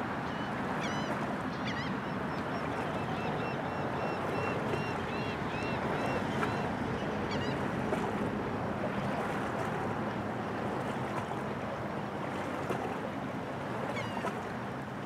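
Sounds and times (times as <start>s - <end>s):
small waves: 0.0s - 15.0s
wind: 0.0s - 15.0s
faint bird calls: 0.3s - 7.6s.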